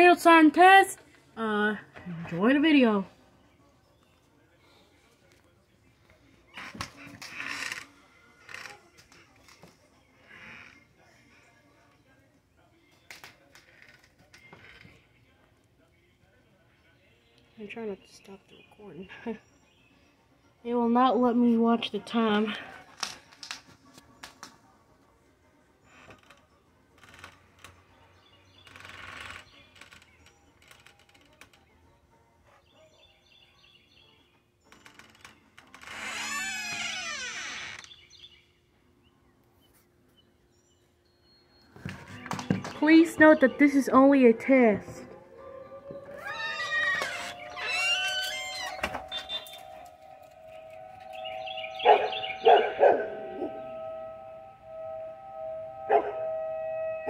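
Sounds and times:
dog howling: 45.0s - 57.0s
warning siren steady tone: 45.0s - 57.0s
bird chirps: 46.2s - 57.0s.

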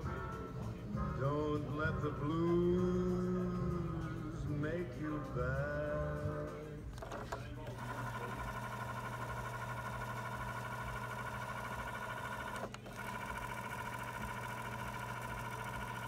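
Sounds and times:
cassette deck fast-winding whine: 7.0s - 16.0s.

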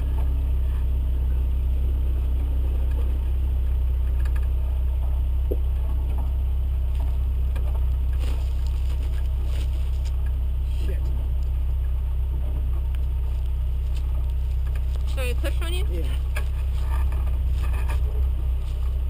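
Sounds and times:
car engine running at low revs: 0.0s - 19.0s
body knocks and rattles: 2.5s - 10.4s, 12.3s - 19.0s.

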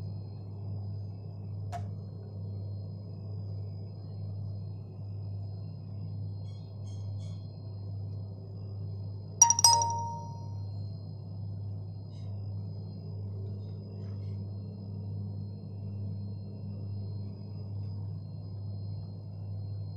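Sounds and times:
dish clinking: 9.4s - 10.5s.

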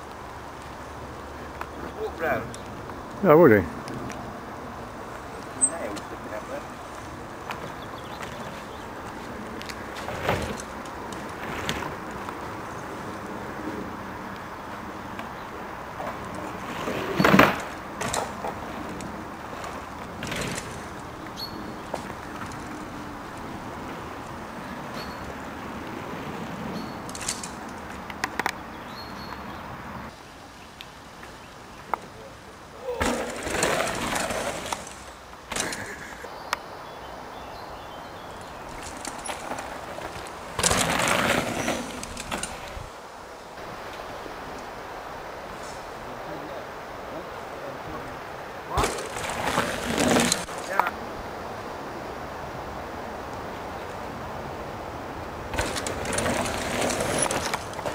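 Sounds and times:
bike tyres on wooden boardwalk: 0.0s - 57.9s
steady outdoor hiss: 0.0s - 57.9s.

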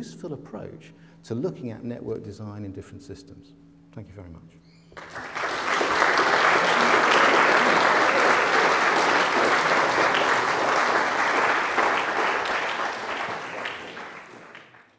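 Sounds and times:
audience applauding: 5.0s - 14.9s.

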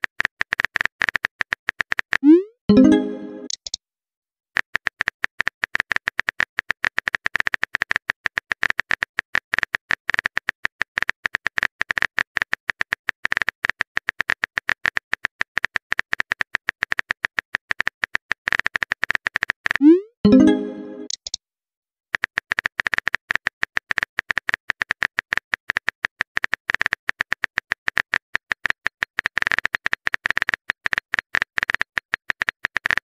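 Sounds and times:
rising pop chime: 2.3s - 3.6s, 19.8s - 21.2s.

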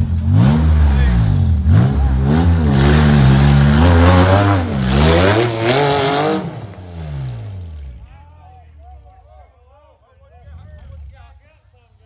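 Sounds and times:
buggy engine revving hard: 0.0s - 8.1s.

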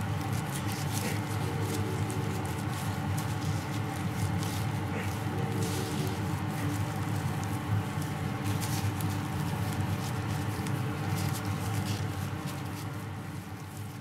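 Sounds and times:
steady low hum: 0.0s - 14.0s
tearing meat squishing: 0.0s - 14.0s.

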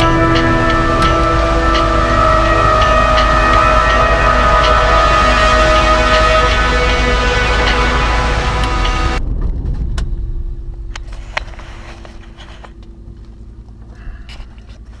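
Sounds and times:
light aircraft engine and propeller: 10.9s - 15.0s.

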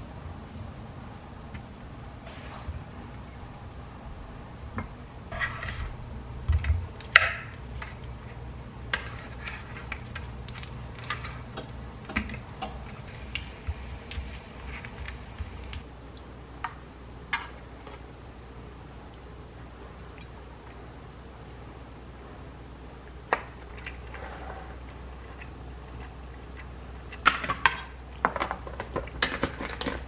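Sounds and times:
steady low hum: 0.0s - 27.2s.

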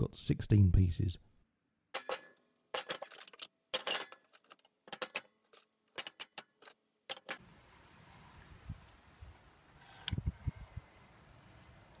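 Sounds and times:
wood pieces knocking on metal: 1.9s - 7.4s
faint steady hiss: 7.4s - 12.0s.

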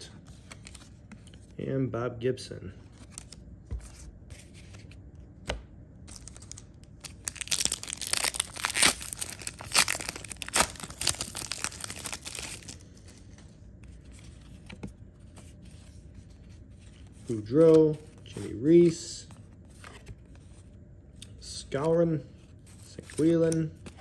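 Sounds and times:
wrapper tearing and crinkling: 6.1s - 12.8s.

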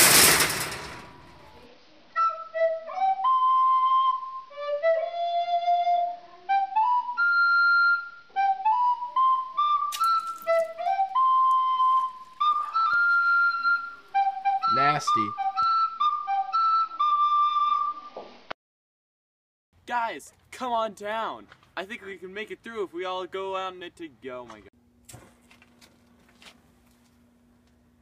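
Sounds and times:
loud burst of noise: 0.0s - 1.2s
flute-like wind instrument melody: 2.1s - 18.2s.

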